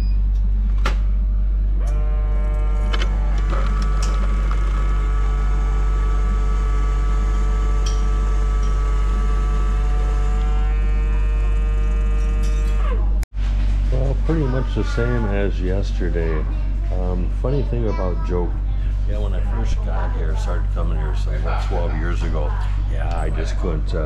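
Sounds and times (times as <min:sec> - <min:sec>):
motorcycle engine running: 0:01.8 - 0:12.8.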